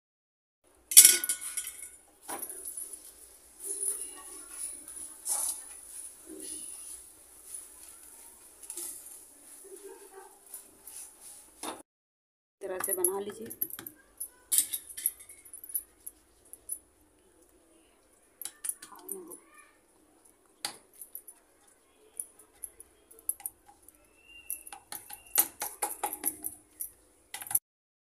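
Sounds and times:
faint voice: 17.2s - 20.4s.

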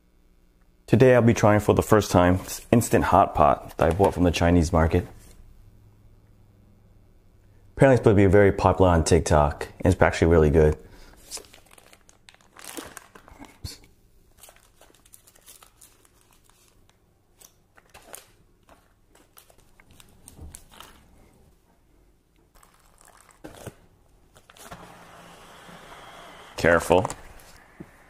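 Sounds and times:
plastic packets crinkling: 11.2s - 21.3s, 22.5s - 24.8s.

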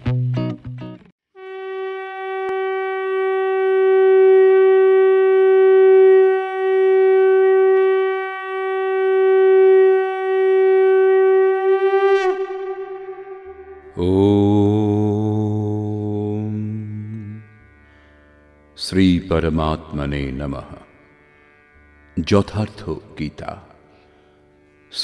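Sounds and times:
conch shell blown: 1.3s - 18.1s.

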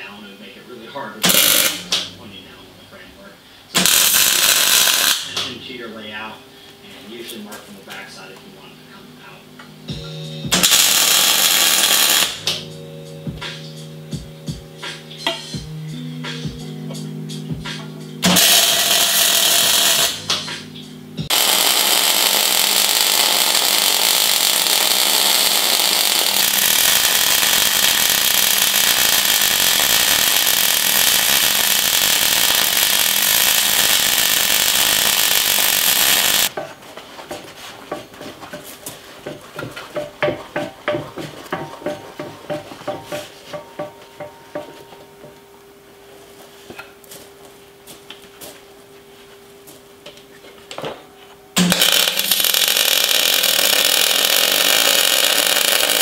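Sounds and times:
arc welding hiss: 1.2s - 2.1s, 3.8s - 5.4s, 10.5s - 12.6s, 18.2s - 20.4s, 21.3s - 36.5s, 51.6s - 56.0s.

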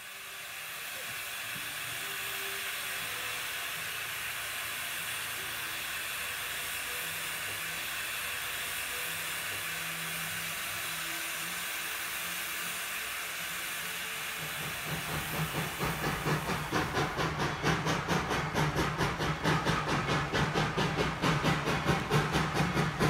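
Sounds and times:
steam locomotive hissing: 0.0s - 23.0s.

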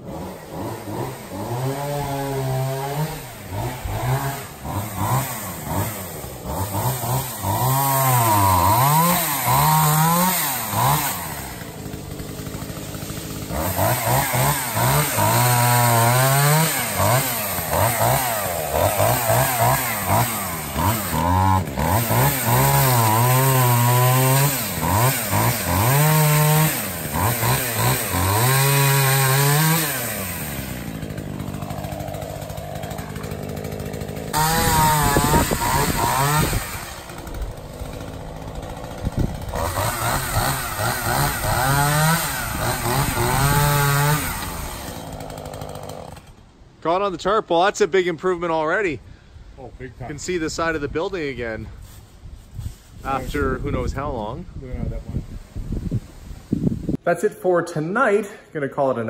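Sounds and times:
chainsaw revving and cutting: 0.0s - 46.5s.

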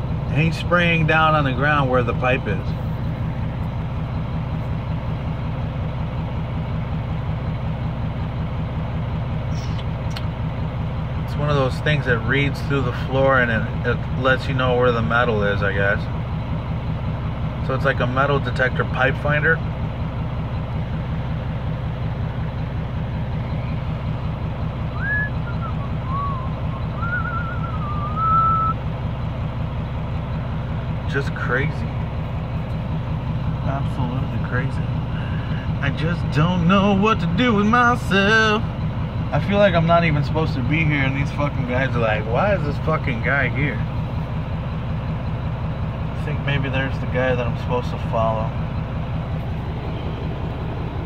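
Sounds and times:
truck engine idling: 0.0s - 51.0s
man whistling a tune: 24.9s - 28.8s.

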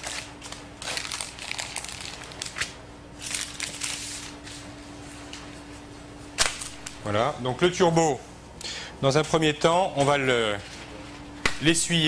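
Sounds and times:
parchment paper rustling: 0.0s - 5.9s.

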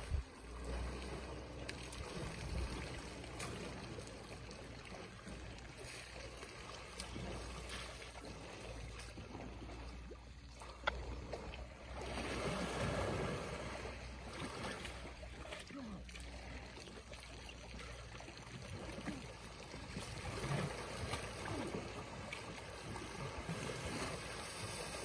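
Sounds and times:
wind rumble on microphone: 0.0s - 0.5s
elephant splashing water: 0.0s - 25.0s
water sloshing and trickling: 0.0s - 25.0s.

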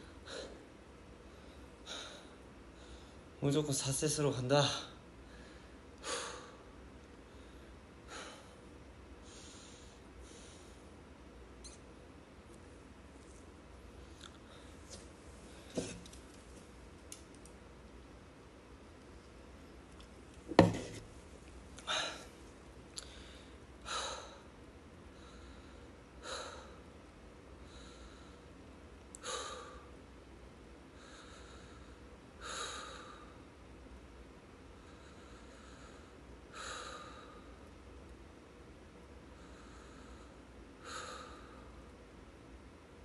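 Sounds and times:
man breathing heavily: 0.0s - 0.6s, 1.2s - 3.3s, 5.2s - 11.0s, 21.8s - 22.3s, 23.0s - 24.5s, 25.1s - 26.8s, 29.2s - 30.0s, 31.0s - 33.4s, 34.8s - 37.6s, 39.3s - 41.9s.

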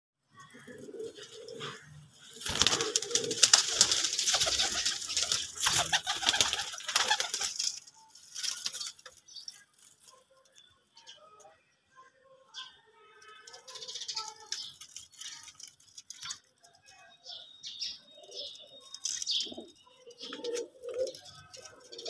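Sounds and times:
pigeons cooing: 0.4s - 7.7s, 18.2s - 22.0s
wings flapping: 2.3s - 9.2s.

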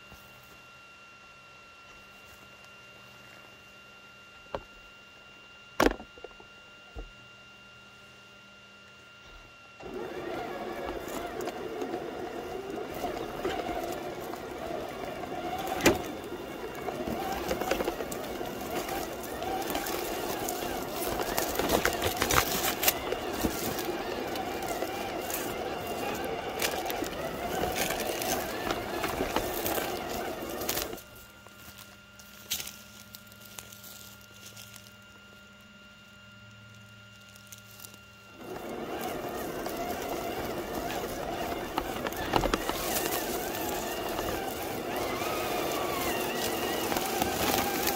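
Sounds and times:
toy car electric motor whining: 9.8s - 34.9s, 37.3s - 47.9s
tyres brushing through dry grass: 9.8s - 35.1s, 37.1s - 47.9s
gravel and leaves crackling: 9.8s - 47.9s.

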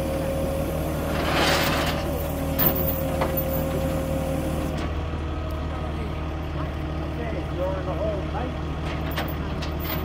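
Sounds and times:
metal chain clinks: 2.6s - 3.7s, 9.1s - 10.0s.

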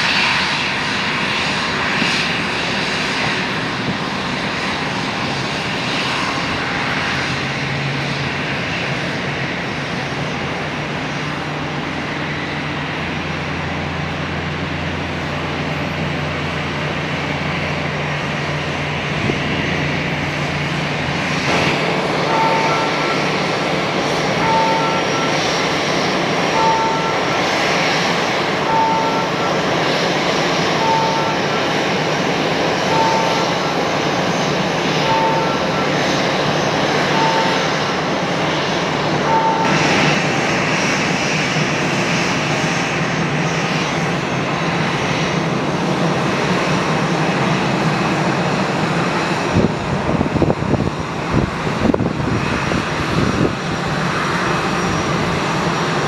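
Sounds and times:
jet engines running: 0.0s - 56.0s
two-note electronic beep: 37.1s - 37.8s.

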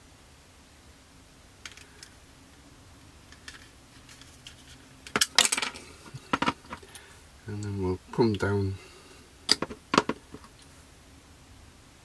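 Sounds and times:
faint ticks of plastic parts: 6.0s - 8.5s.

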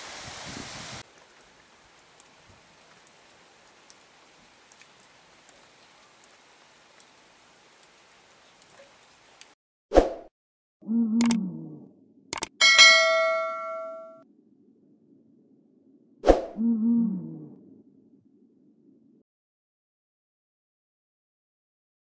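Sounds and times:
faint hiss: 0.0s - 9.5s
rushing water: 0.0s - 9.6s.

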